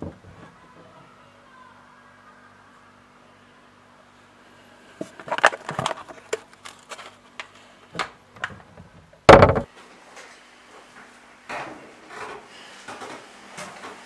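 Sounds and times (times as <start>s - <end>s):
crackling rustles: 5.0s - 7.8s
loud heavy thump: 9.3s - 9.7s.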